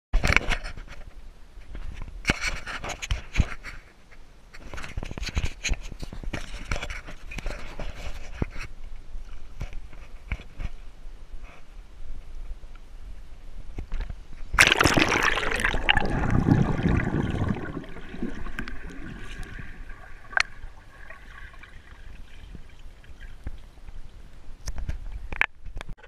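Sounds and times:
muffled underwater hush: 0:14.6 - 0:23.5
water splashing and churning: 0:14.6 - 0:23.7.

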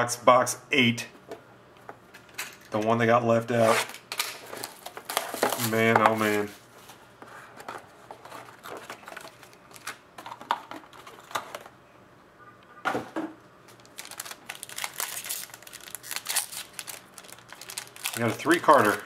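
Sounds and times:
foil wrapper crinkling and tearing: 0:13.7 - 0:19.0.

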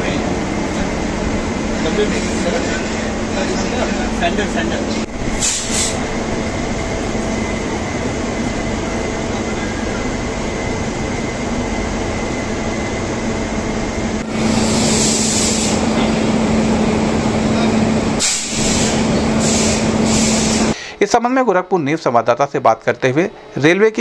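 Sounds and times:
electric locomotive humming: 0:00.0 - 0:20.9
air hissing: 0:05.2 - 0:06.2, 0:14.2 - 0:16.0, 0:18.2 - 0:20.8.

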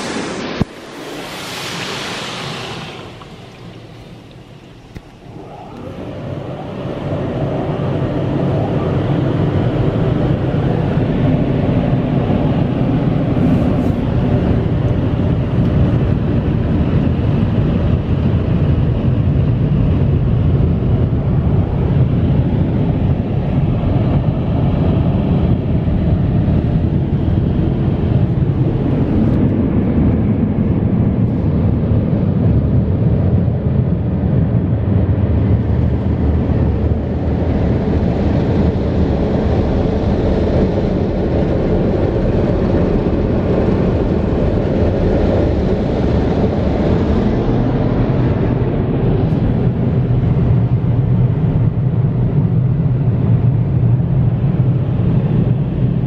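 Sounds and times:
car wash air dryer blowers: 0:00.0 - 0:16.4.

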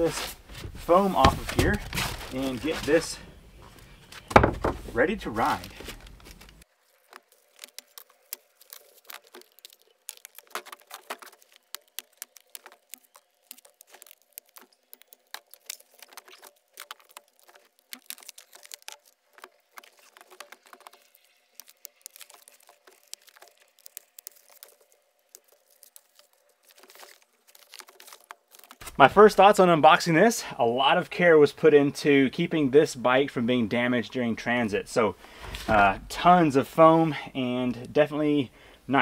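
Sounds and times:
packing foam and plastic crinkling: 0:00.0 - 0:30.0.

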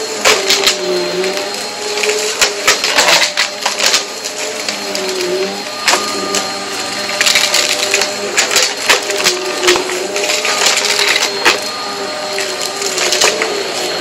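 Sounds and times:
vacuum cleaner motor humming: 0:00.0 - 0:14.0.

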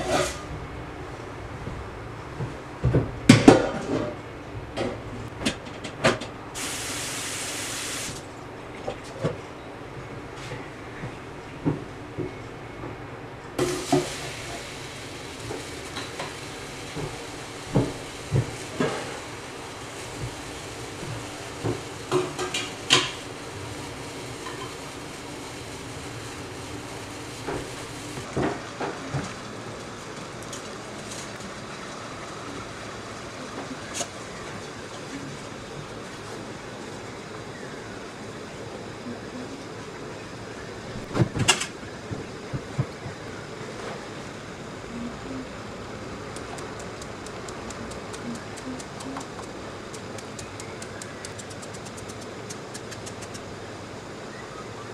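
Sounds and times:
steam hissing: 0:06.6 - 0:08.2, 0:13.6 - 0:28.3.

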